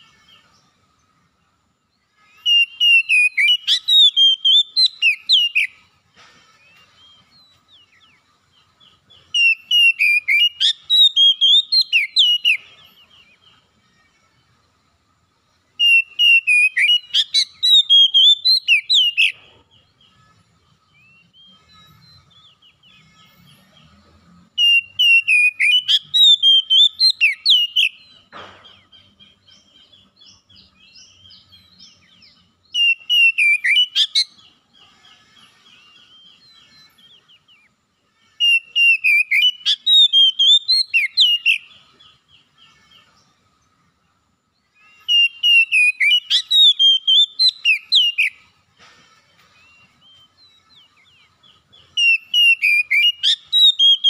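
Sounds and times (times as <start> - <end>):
bird singing whistled phrases: 2.4 - 5.8, 9.3 - 12.7, 15.8 - 19.4, 24.6 - 28.1, 29.3 - 34.4, 38.4 - 41.8, 44.9 - 48.4, 49.6 - 54.0.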